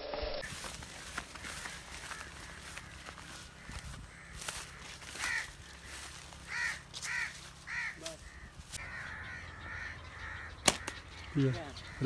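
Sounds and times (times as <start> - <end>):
faint bird chatter: 0.4 - 12.0
crow cawing: 0.5 - 12.0
slingshot snap: 10.6 - 11.0.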